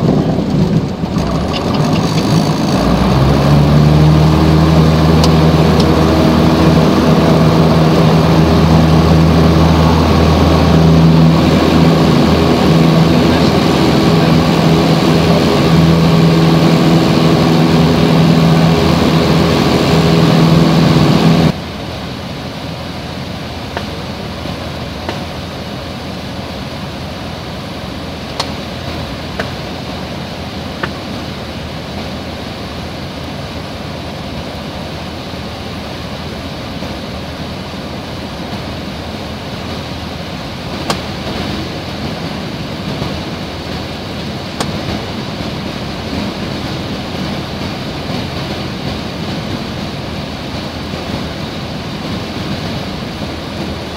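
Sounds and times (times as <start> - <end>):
low steady hum: 0.0 - 53.9
propeller plane engine droning: 0.0 - 53.9.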